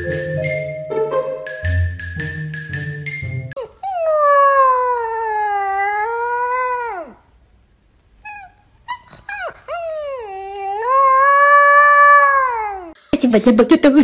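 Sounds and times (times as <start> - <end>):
puppy howling: 3.6 - 7.2, 8.2 - 13.0
puppy yipping: 8.2 - 11.5.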